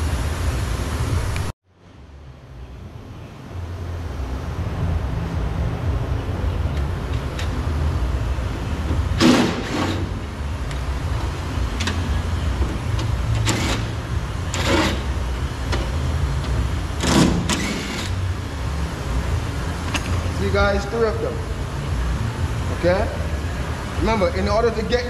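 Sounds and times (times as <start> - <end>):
steady low hum: 0.0 - 25.0
cordless drill bursts: 17.0 - 18.1.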